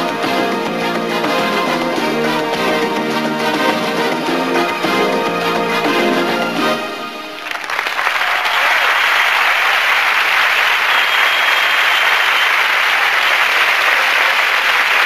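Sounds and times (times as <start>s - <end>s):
music: 0.0s - 7.6s
audience applauding: 0.0s - 15.0s.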